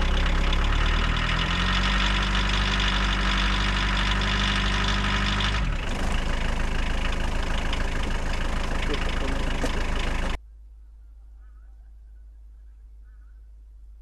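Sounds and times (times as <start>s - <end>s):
engine running: 0.0s - 10.4s.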